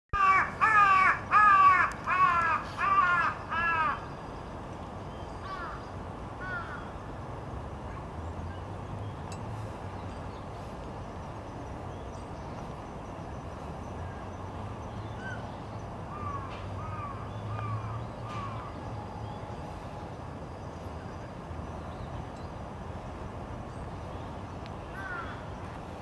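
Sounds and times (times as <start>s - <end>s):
crow cawing: 0.2s - 4.0s, 6.4s - 6.9s, 16.1s - 18.7s, 24.9s - 25.5s.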